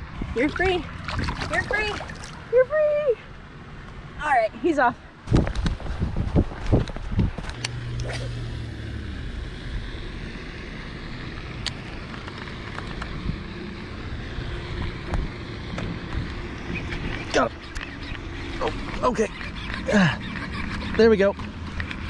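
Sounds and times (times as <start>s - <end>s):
wind rumble on microphone: 0.0s - 3.0s, 5.2s - 19.0s.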